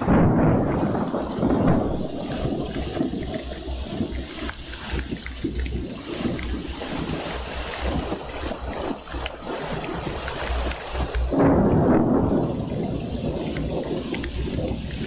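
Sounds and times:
low thunder rumble: 0.0 - 15.0
rain falling: 0.0 - 15.0.

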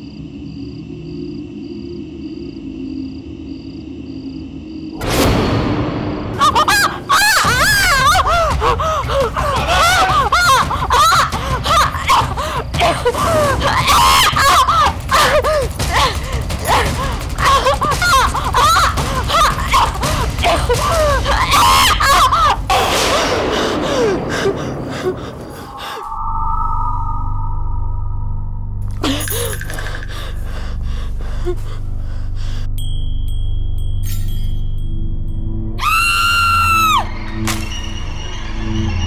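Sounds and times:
low rumble: 22.5 - 34.0
shrill warbling shrieks: 25.5 - 28.8, 35.8 - 39.0.

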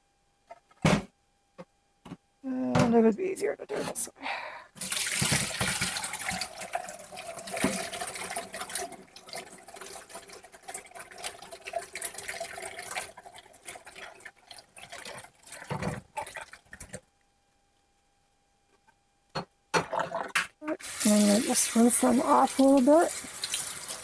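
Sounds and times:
water running in a sink: 4.8 - 18.0, 19.4 - 24.0.

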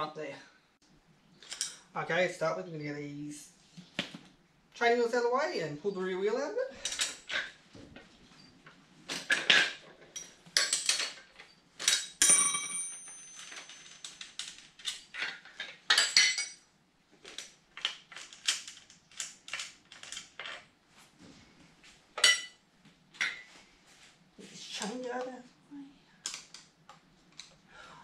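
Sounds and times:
metal tools clinking and rattling: 1.4 - 1.9, 6.8 - 7.6, 9.1 - 16.6, 22.2 - 22.6
metal part ringing: 12.0 - 13.9.

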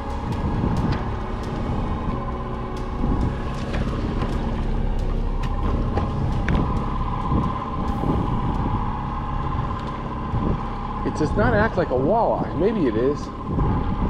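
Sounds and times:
outboard motor humming: 0.0 - 14.0
wind on microphone: 0.0 - 14.0.

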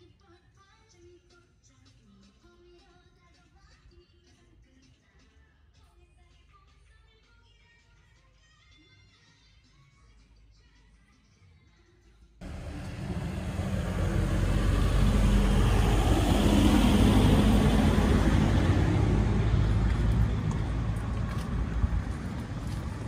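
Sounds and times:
vehicle driving past: 12.4 - 23.0.

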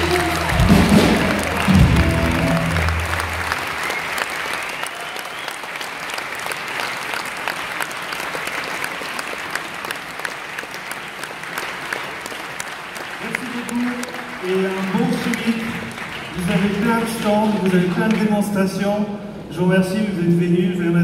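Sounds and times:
rock band with electric guitar: 0.0 - 3.5
audience applause: 0.0 - 18.6.

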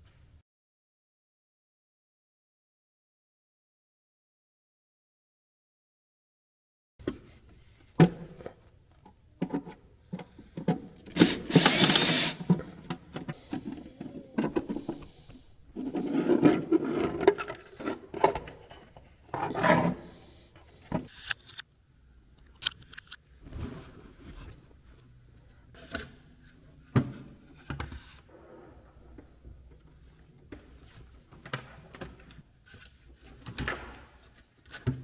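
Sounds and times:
cordless drill running: 11.1 - 12.5.

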